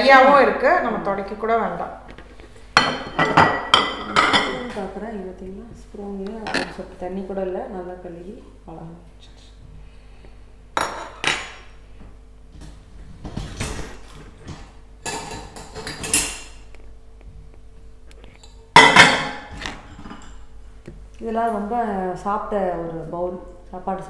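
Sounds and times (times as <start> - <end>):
dishes and cutlery clattering: 2.8 - 4.8, 14.5 - 16.6, 18.8 - 20.4.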